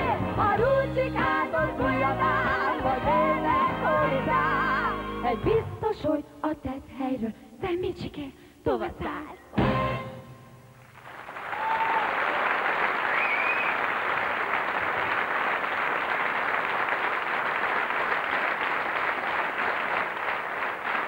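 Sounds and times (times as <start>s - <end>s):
audience applauding: 10.8s - 21.0s.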